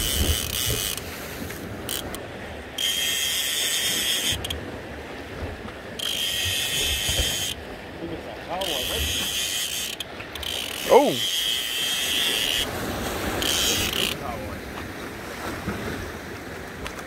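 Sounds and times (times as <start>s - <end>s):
fishing reel ratcheting: 0.0s - 1.1s, 1.9s - 2.2s, 2.8s - 4.6s, 6.0s - 7.6s, 8.6s - 12.7s, 13.4s - 14.2s.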